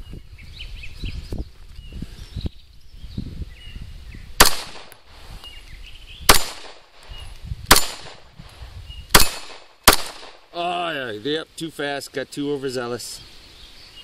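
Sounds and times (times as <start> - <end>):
pistol shots: 4.4 - 5.0, 6.3 - 6.9, 7.7 - 8.2, 9.1 - 10.5.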